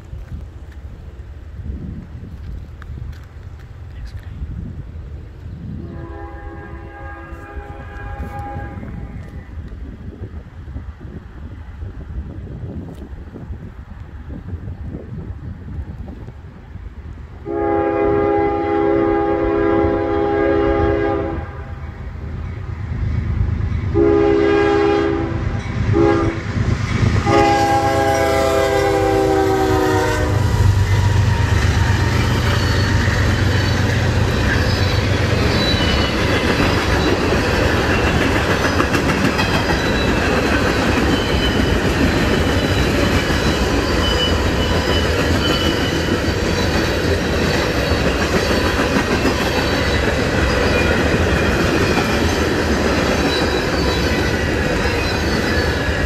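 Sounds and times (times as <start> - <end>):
locomotive air horn blasts: 5.8 - 9.2, 17.4 - 21.8, 23.9 - 26.4, 27.2 - 33.0
train wheel clatter: 30.5 - 56.0.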